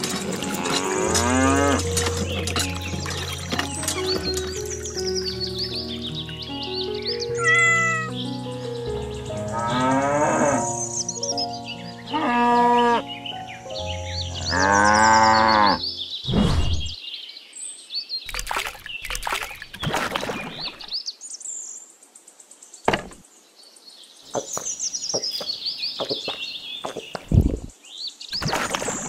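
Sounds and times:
birds chirping: 0.0 - 29.0
cow mooing: 0.5 - 1.9, 9.6 - 10.7, 12.1 - 13.0, 14.4 - 15.8
sharp knocks and taps: 24.3 - 27.4.

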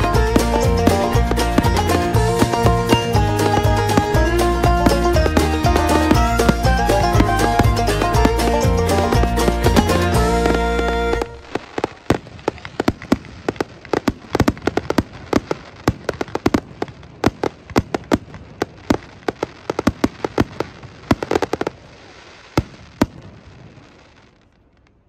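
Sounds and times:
fireworks popping and banging: 0.0 - 25.0.

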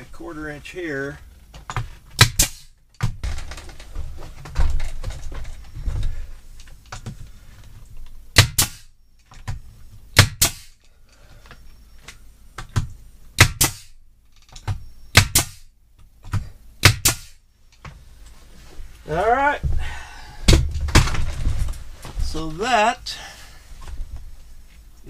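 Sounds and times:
nail gun firing: 2.2 - 2.7, 8.3 - 8.9, 10.1 - 10.8, 13.4 - 14.0, 14.6 - 15.7, 16.8 - 17.4.

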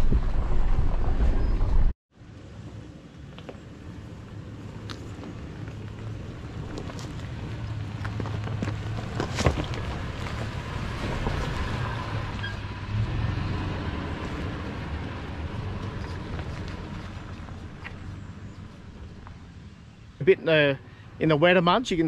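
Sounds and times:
tyres crunching over gravel: 3.2 - 19.7.

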